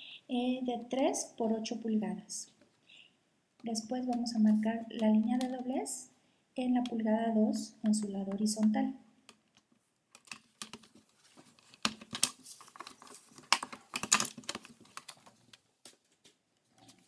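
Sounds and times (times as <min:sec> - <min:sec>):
paper rustling: 0:10.3 - 0:17.0.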